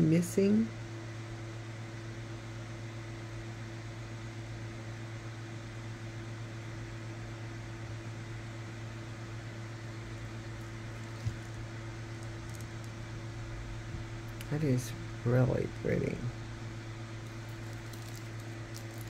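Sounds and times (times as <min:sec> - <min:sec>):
fan humming: 0:00.0 - 0:19.0.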